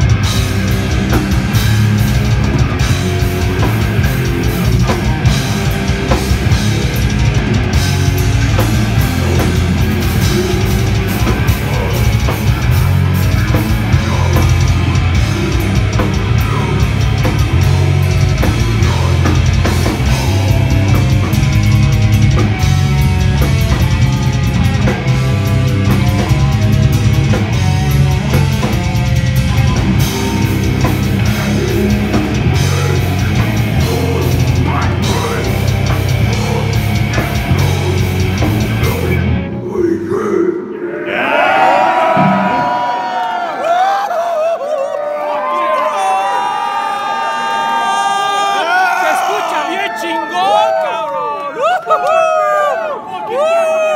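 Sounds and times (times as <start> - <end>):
heavy metal band playing live: 0.0 - 39.8, 41.3 - 43.5
high repeating guitar line: 0.0 - 40.2, 41.4 - 43.3.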